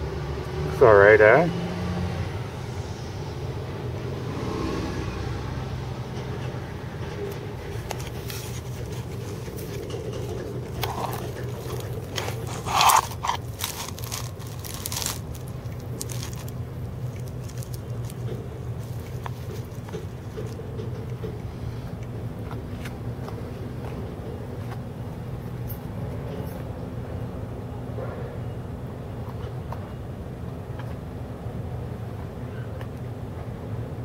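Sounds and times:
low hum of traffic: 0.0 - 34.0
dry grass and twigs crackling: 7.7 - 20.6.

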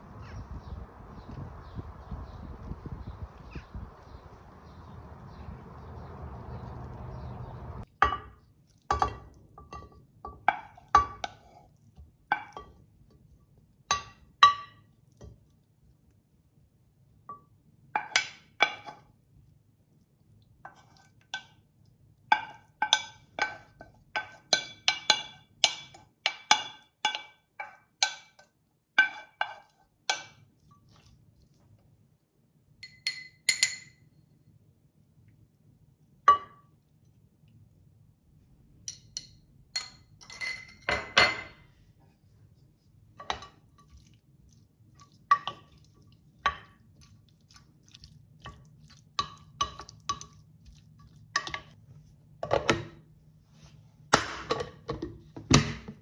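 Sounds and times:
spoon clinking on glass container: 32.8 - 34.0, 38.9 - 41.6.

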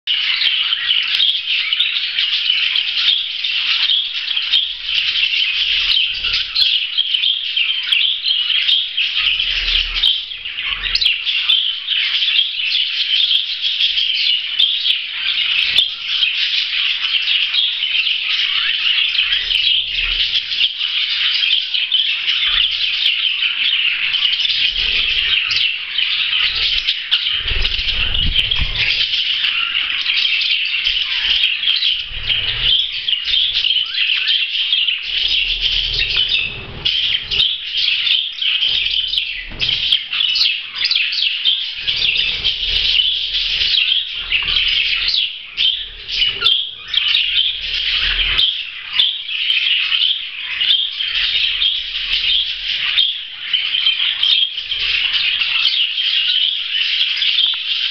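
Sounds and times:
budgerigars chattering and warbling: 0.1 - 57.9
wing flapping: 24.6 - 25.6, 26.2 - 29.8, 30.8 - 34.0, 34.8 - 40.1, 41.6 - 48.4.

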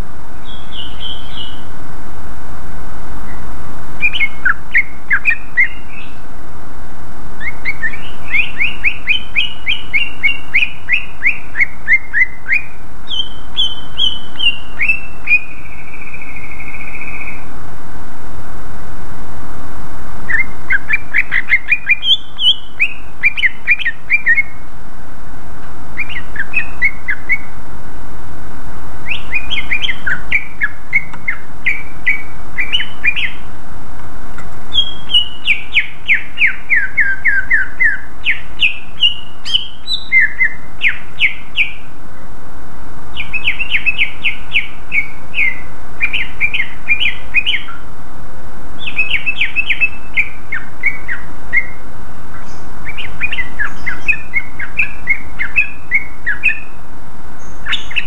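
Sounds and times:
bird singing rapid chirps: 0.4 - 1.8, 4.0 - 6.3, 7.4 - 17.5, 20.3 - 24.6, 26.0 - 27.5, 29.0 - 33.5, 34.7 - 41.9, 43.1 - 47.9, 48.8 - 56.8, 57.4 - 58.0.

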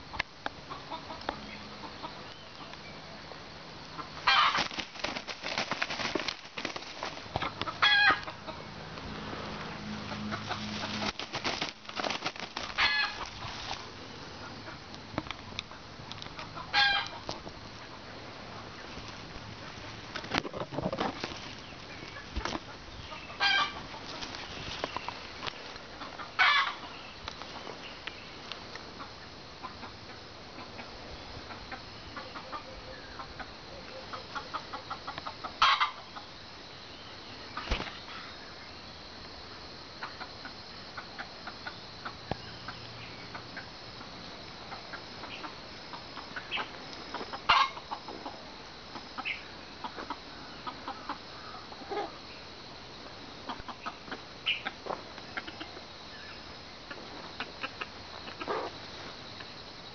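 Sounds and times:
rooster clucking: 0.7 - 2.2, 3.9 - 8.8, 9.9 - 14.9, 15.7 - 18.1, 19.6 - 25.2, 25.8 - 27.0, 29.0 - 36.2, 44.7 - 52.2, 53.4 - 55.8, 56.9 - 58.8.

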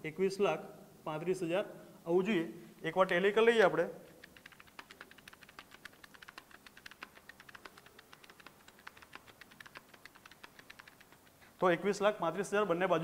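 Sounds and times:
calculator keys clicking: 4.2 - 11.4.

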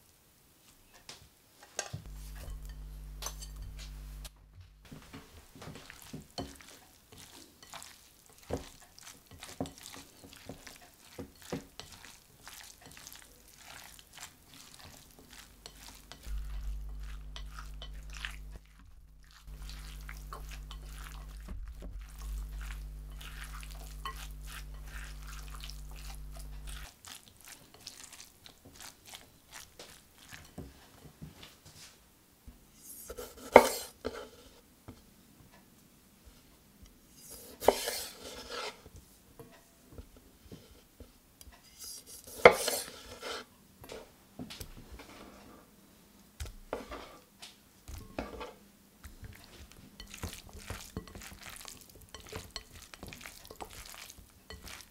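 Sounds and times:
steady low hum: 2.0 - 5.0, 16.0 - 26.9
spatula scraping glass bowl: 2.1 - 3.9, 5.8 - 28.2, 32.8 - 34.2, 37.2 - 38.8, 41.6 - 43.5, 49.4 - 54.9.

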